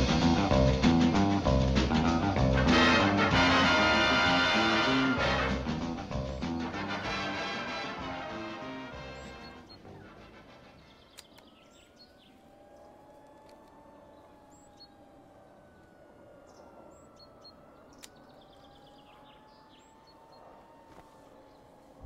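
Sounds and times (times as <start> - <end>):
birds chirping: 0.0 - 22.0
distant siren wailing: 0.9 - 22.0
sharp clicks: 11.1 - 11.6, 17.9 - 18.4.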